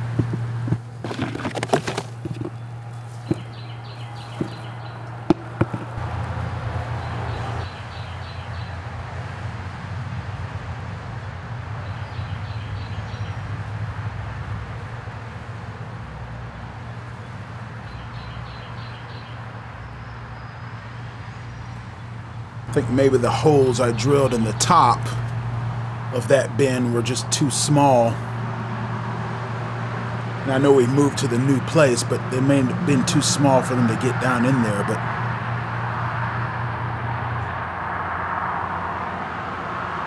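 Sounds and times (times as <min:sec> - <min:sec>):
flies buzzing: 0:00.0 - 0:08.7
bird chirping: 0:02.2 - 0:06.0, 0:07.0 - 0:08.8, 0:11.8 - 0:13.4, 0:17.8 - 0:25.3.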